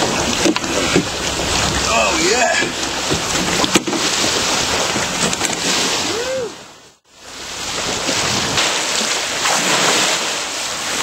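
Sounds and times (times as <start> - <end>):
wind buffeting microphone: 0.0 - 6.8
water splashing and pouring off net: 7.6 - 11.0.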